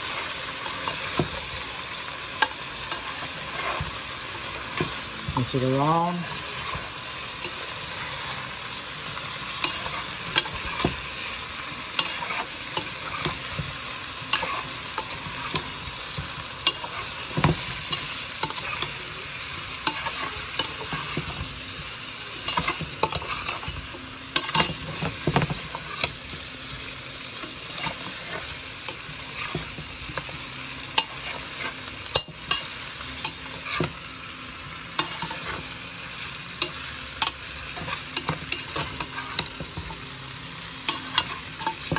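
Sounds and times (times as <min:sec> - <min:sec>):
chicken sizzling in oil: 0:00.0 - 0:41.9
metal spoon scraping a pot: 0:12.0 - 0:19.0, 0:27.4 - 0:32.7.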